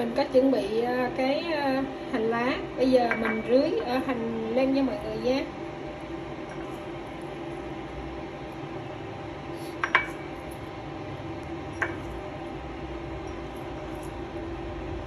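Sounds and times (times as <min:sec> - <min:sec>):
low room hum: 0:00.0 - 0:15.0
clinks on ceramic plate: 0:03.1 - 0:03.5, 0:09.8 - 0:10.3, 0:11.8 - 0:12.1.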